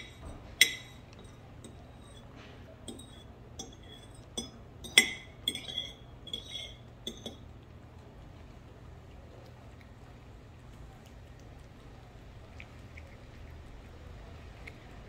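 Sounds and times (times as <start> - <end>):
metal fork clinking on ceramic dish: 0.0 - 2.2, 2.9 - 7.4.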